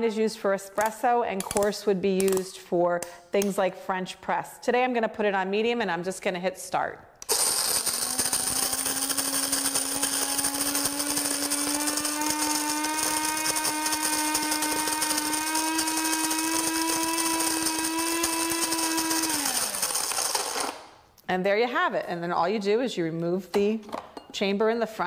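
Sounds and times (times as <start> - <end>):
coffee grinder grinding: 7.2 - 21.0.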